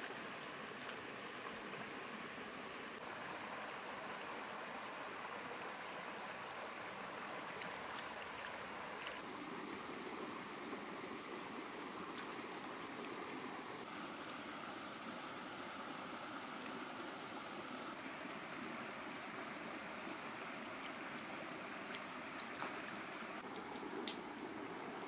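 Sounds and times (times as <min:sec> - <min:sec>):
stream running over rocks: 0:00.0 - 0:25.0
faint clicks: 0:23.5 - 0:24.2.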